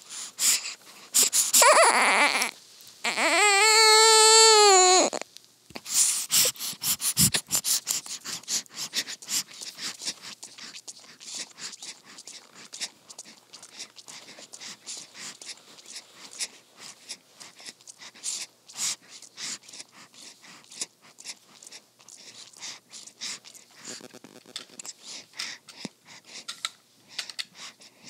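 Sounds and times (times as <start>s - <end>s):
baby sucking on a pacifier: 0.1s - 3.9s, 4.6s - 26.5s.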